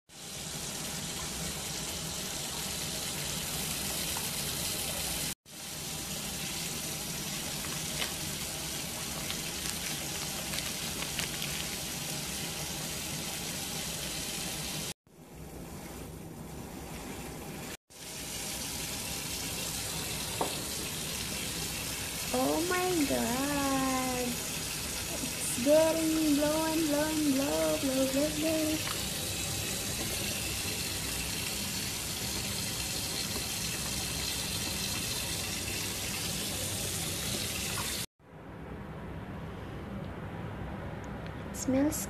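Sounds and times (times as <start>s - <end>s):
tap water filling a bathtub: 0.4s - 14.8s, 18.0s - 23.0s, 28.5s - 38.1s.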